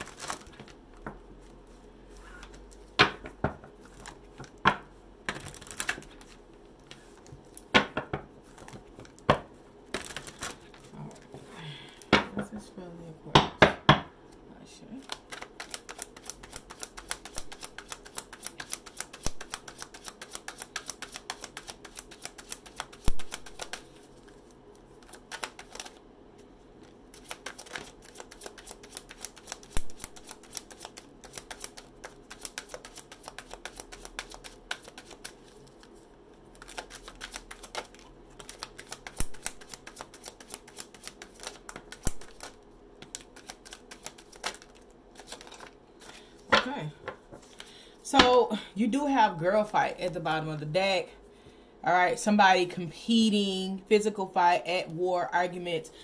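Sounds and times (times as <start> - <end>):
cards being shuffled: 0.0 - 0.8, 5.3 - 7.6, 9.9 - 11.4, 15.0 - 26.0, 26.8 - 46.6.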